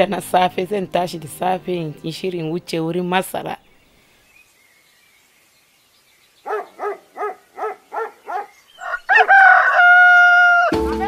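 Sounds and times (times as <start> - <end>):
rooster crowing: 8.8 - 10.8.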